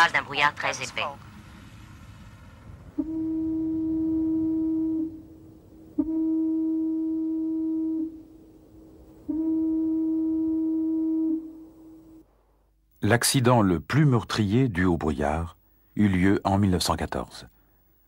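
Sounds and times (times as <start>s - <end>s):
foghorn blasts: 2.9s - 8.3s, 9.2s - 12.2s.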